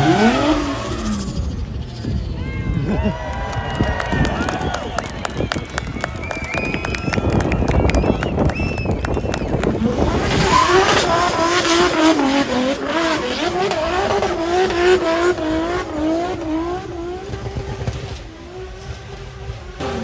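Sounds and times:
car engine revving: 0:00.0 - 0:02.3, 0:09.3 - 0:20.0.

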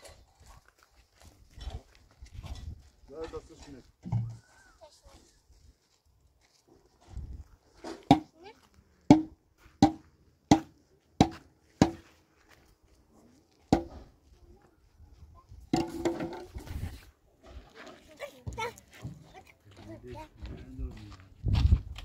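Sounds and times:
rough scraping: 0:15.7 - 0:18.8.

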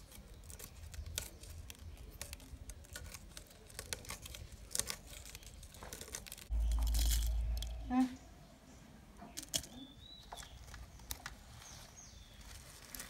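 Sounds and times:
dry chillies crackling: 0:00.0 - 0:08.3, 0:09.1 - 0:13.0
loud low hum: 0:06.5 - 0:08.4.

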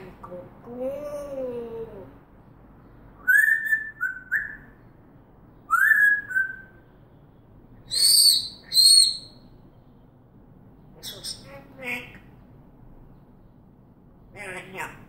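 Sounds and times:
parrot whistling: 0:03.2 - 0:04.8, 0:05.7 - 0:06.7, 0:07.9 - 0:09.4.

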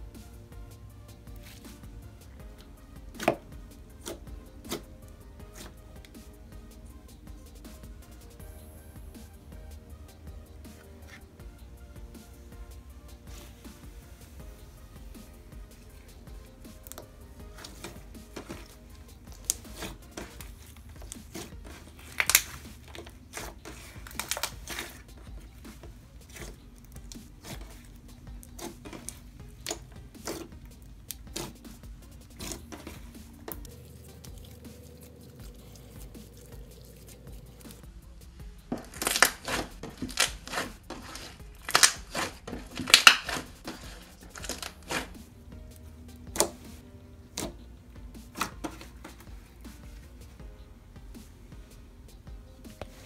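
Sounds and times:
slime squished wet crackles: 0:13.3 - 0:37.9, 0:38.6 - 0:45.3.

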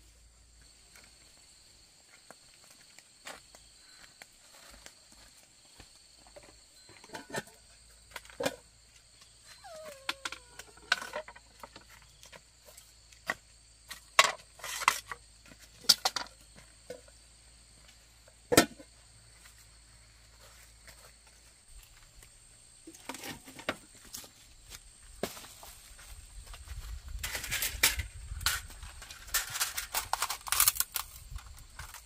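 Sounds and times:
insects droning: 0:00.0 - 0:32.0
shuffling footsteps: 0:00.6 - 0:06.7, 0:19.3 - 0:27.7.

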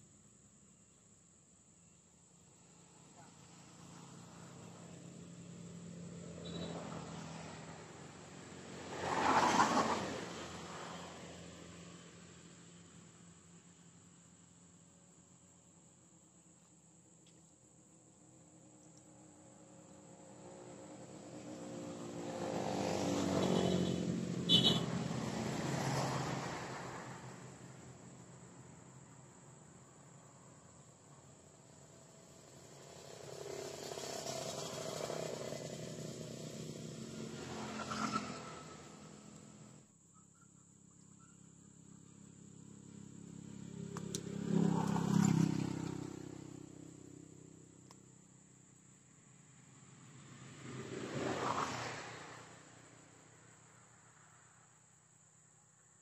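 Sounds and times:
vehicle engine passing by: 0:02.6 - 0:13.4, 0:19.5 - 0:29.3, 0:30.2 - 0:39.8, 0:42.1 - 0:47.9, 0:49.5 - 0:53.5.

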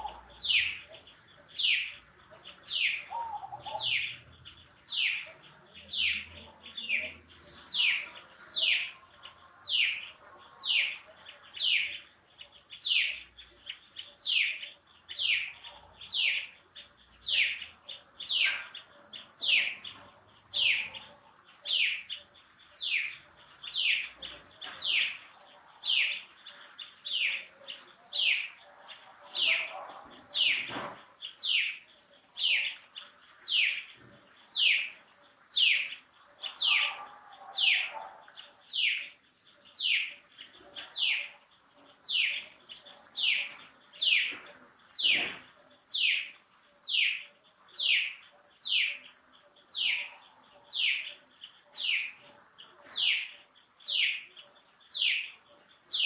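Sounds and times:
bird whistling calls: 0:02.8 - 0:04.1.

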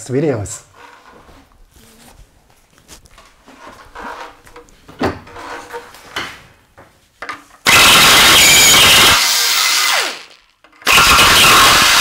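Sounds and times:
knocks and clatter of handled tools: 0:03.2 - 0:07.6, 0:10.6 - 0:10.9.

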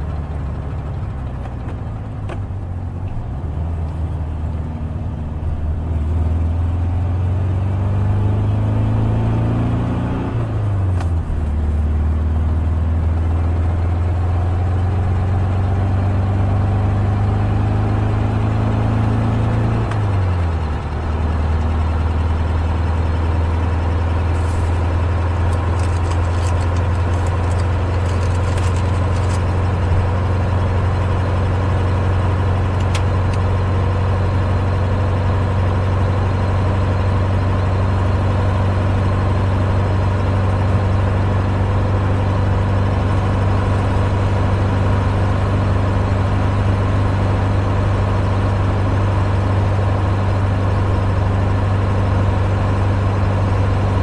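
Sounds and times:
car engine cruising: 0:00.0 - 0:54.0
road noise: 0:00.0 - 0:54.0
plastic bag crinkling: 0:24.4 - 0:29.8.

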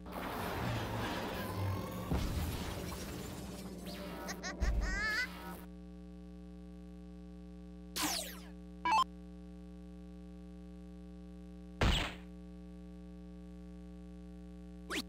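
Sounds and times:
electronic sound effects: 0:00.2 - 0:05.7, 0:08.0 - 0:09.1
electrical hum: 0:03.3 - 0:15.0.

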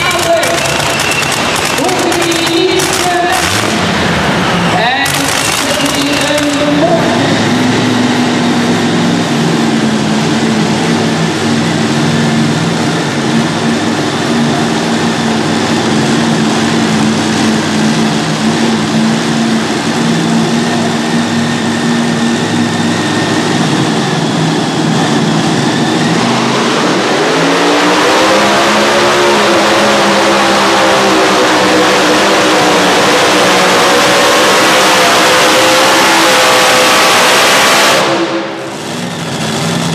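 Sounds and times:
tractor engine revving: 0:00.0 - 0:39.9.

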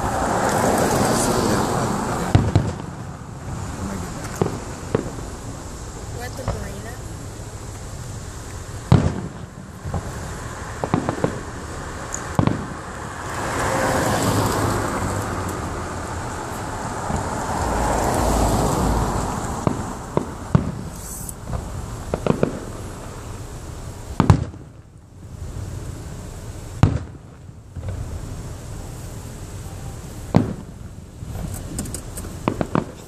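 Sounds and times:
rushing grainy firework noise: 0:00.0 - 0:33.0
firework shells bursting: 0:04.2 - 0:13.7, 0:19.2 - 0:23.5, 0:24.1 - 0:24.8, 0:30.2 - 0:33.0.

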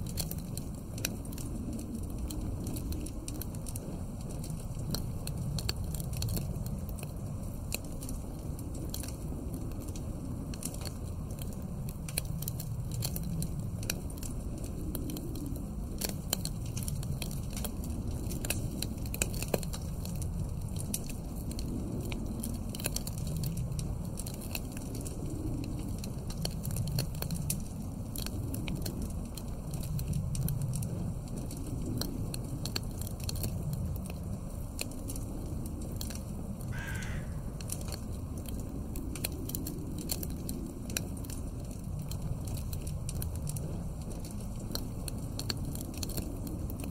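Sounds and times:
low gusting wind: 0:00.0 - 0:46.9
wood fire crackling and popping: 0:00.0 - 0:46.9.

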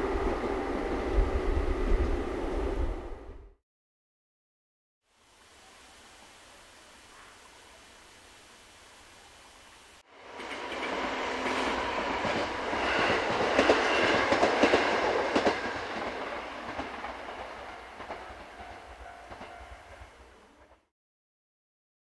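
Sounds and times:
train wheels clicking over rail joints: 0:12.1 - 0:19.6
crossing warning bell: 0:17.6 - 0:20.3.

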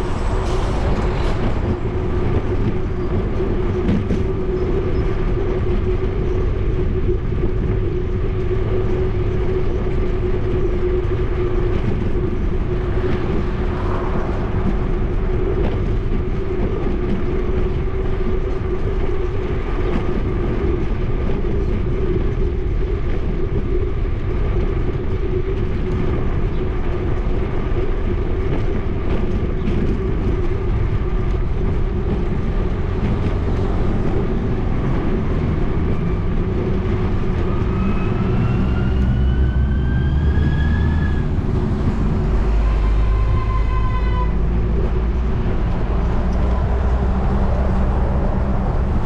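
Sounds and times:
bicycle riding rumble: 0:00.0 - 0:49.0
truck engine accelerating: 0:44.4 - 0:49.0.

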